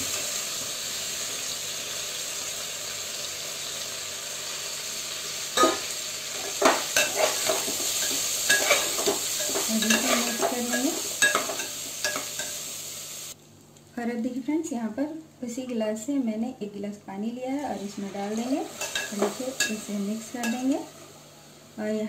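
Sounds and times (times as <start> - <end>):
rice sizzling in ghee: 0.0 - 13.4, 17.6 - 22.0
ladle scraping against pot: 6.6 - 10.5.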